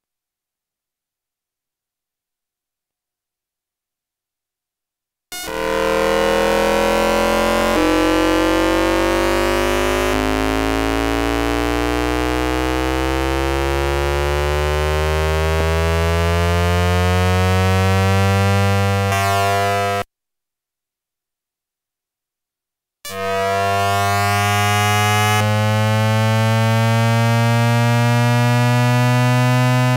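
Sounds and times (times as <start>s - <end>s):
electronic inverter tones rising: 5.4s - 20.0s.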